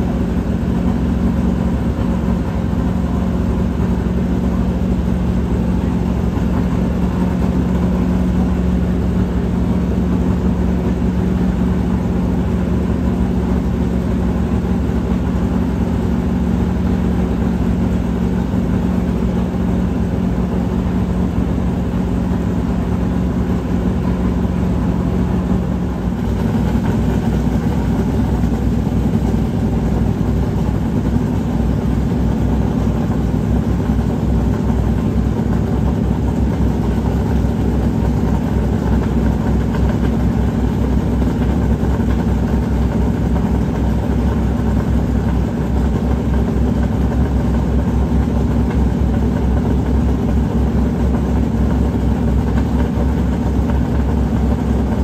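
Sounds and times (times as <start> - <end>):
race car engine droning: 0.0 - 55.0.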